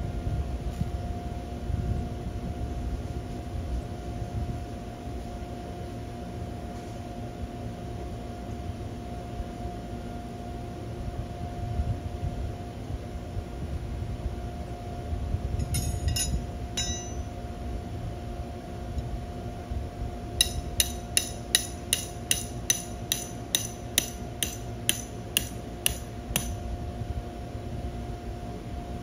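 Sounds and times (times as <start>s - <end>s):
hammer striking metal stake: 15.6s - 17.3s, 20.4s - 26.6s.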